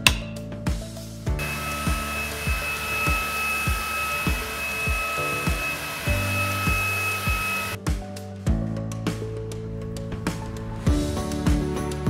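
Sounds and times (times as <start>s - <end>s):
background music with steady beat: 0.0s - 12.0s
stick vacuum running: 1.4s - 7.8s.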